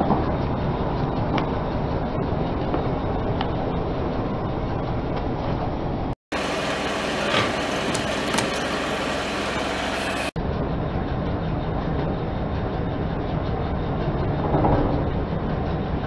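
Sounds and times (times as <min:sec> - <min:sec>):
car engine running: 0:06.3 - 0:10.4.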